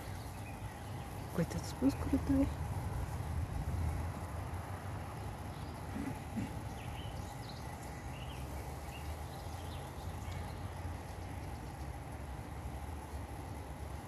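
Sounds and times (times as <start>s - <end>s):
bird chirps: 0.0s - 2.2s, 5.2s - 11.8s
steady low rumble: 0.0s - 14.0s.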